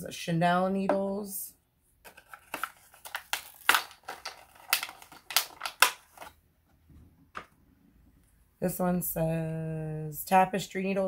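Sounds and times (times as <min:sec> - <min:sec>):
small tubes clicking and clattering: 0:02.1 - 0:06.3.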